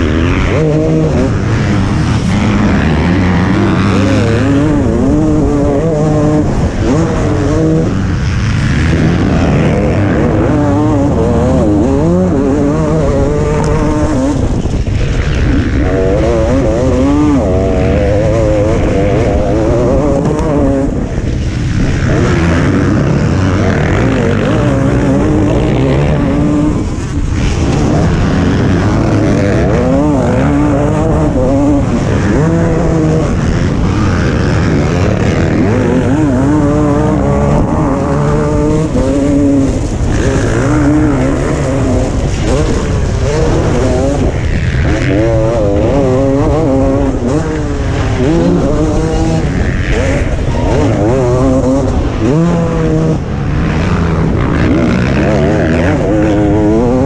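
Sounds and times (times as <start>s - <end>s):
motocross bike engine revving: 0.0s - 57.0s
other motorbike engines: 0.0s - 57.0s.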